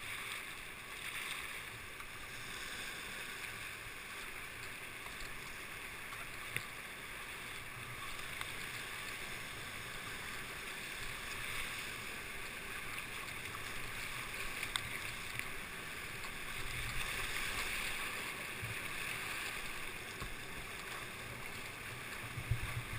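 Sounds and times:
faint clicks: 0:03.4 - 0:06.8, 0:07.5 - 0:09.2, 0:12.8 - 0:17.7.

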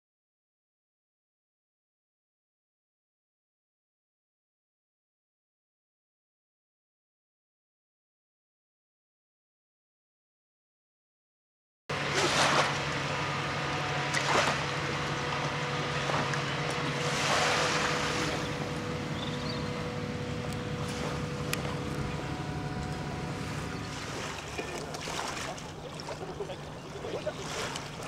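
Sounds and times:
low engine hum: 0:11.9 - 0:28.0.

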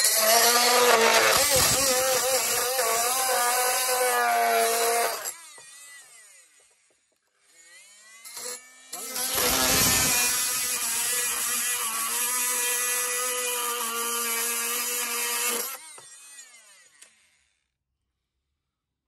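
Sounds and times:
oscillating multi-tool cutting metal: 0:00.0 - 0:17.6.

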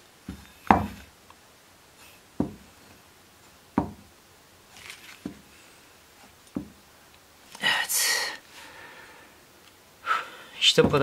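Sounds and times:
knife knocking on wooden bench: 0:00.3 - 0:01.0, 0:03.8 - 0:04.0.

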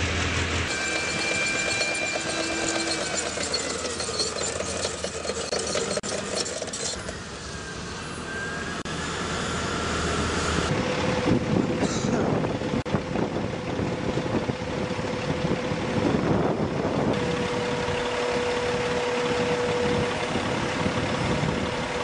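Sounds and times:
turbine engine whine: 0:00.0 - 0:22.0
steel tracks clattering: 0:00.5 - 0:07.3.

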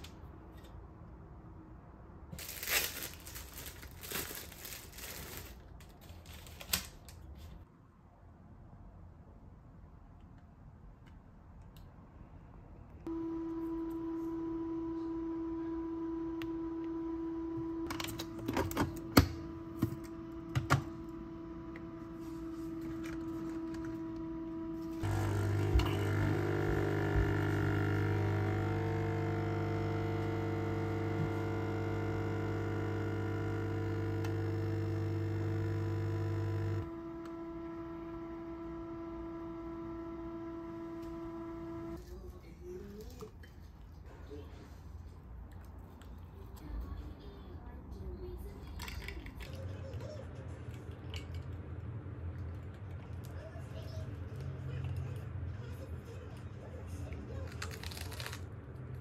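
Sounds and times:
air fryer humming: 0:13.1 - 0:42.0
coffee machine pump humming: 0:13.1 - 0:42.0.

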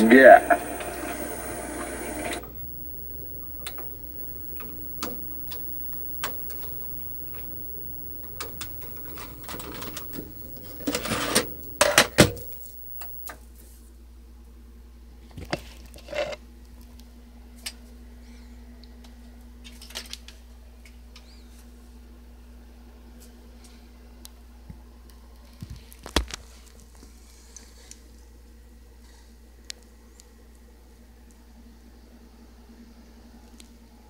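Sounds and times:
tape mechanism clicking and whirring: 0:00.0 - 0:13.3
faint steady hum: 0:00.0 - 0:13.4.

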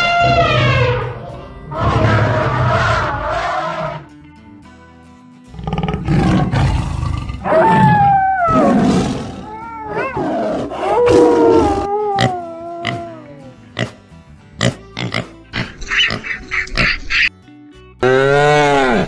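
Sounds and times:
tiger roar: 0:00.0 - 0:04.1, 0:05.5 - 0:13.4
background music: 0:00.0 - 0:19.0.

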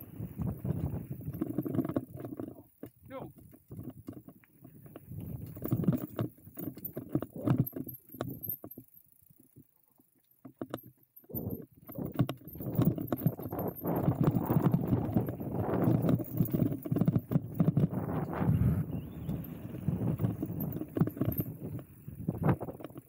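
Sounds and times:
bike tyre rumble: 0:00.0 - 0:07.5, 0:11.3 - 0:23.0
bike rattling knocks: 0:10.4 - 0:18.4, 0:19.0 - 0:23.0.

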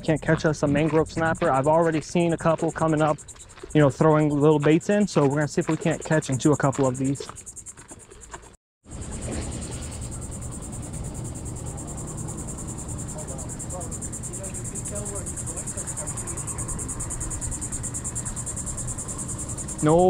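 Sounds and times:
high-pitched insect trill: 0:00.0 - 0:20.0.

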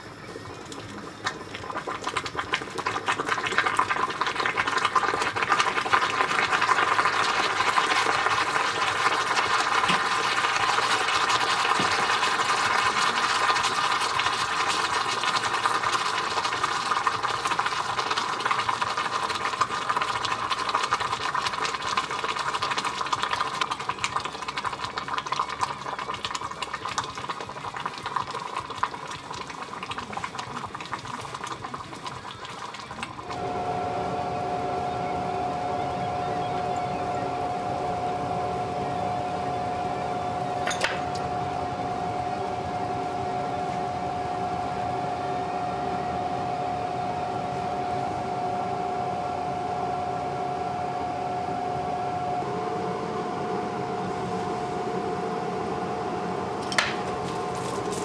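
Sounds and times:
steady hum: 0:33.1 - 0:58.0
hot metal sizzling in water: 0:56.6 - 0:58.0.

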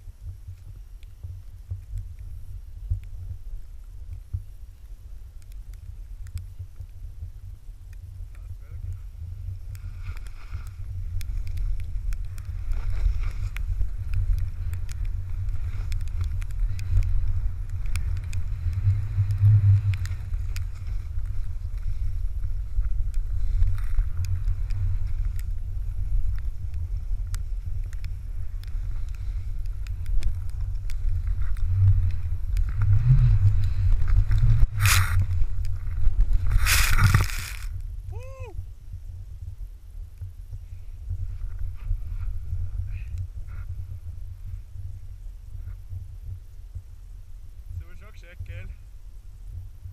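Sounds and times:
wind rumbling on microphone: 0:00.0 - 0:49.9
hiss of snow under board: 0:09.1 - 0:26.1, 0:26.8 - 0:37.8.

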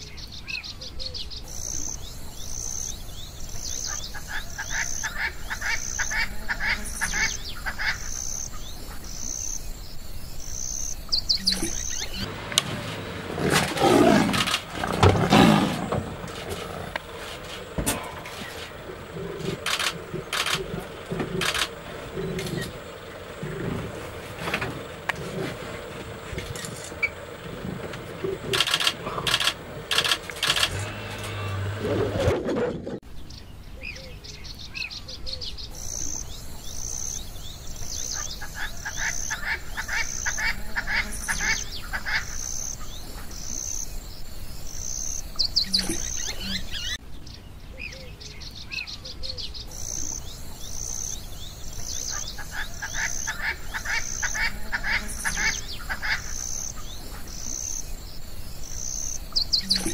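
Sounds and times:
birds and insects chirping: 0:00.0 - 0:59.9
fast trilling ticks: 0:18.2 - 0:23.7, 0:26.3 - 0:30.8.

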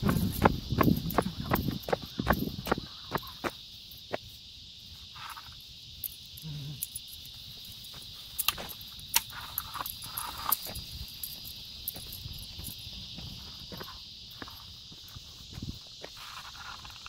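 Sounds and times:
high-pitched insect chorus: 0:00.0 - 0:17.0
light clicks and steps: 0:06.8 - 0:17.0.

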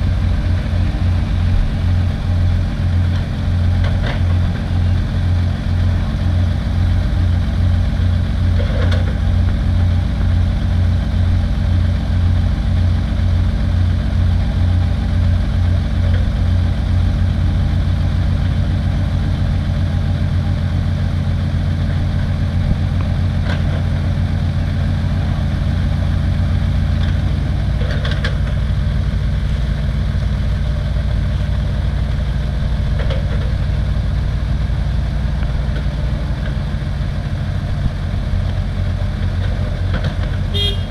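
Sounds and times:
diesel engines droning: 0:00.0 - 0:40.9.

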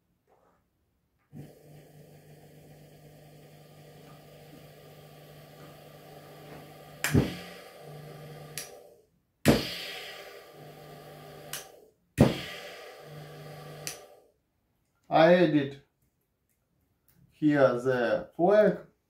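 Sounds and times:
washing machine motor hum: 0:01.3 - 0:14.2
switch click: 0:13.8 - 0:14.0.

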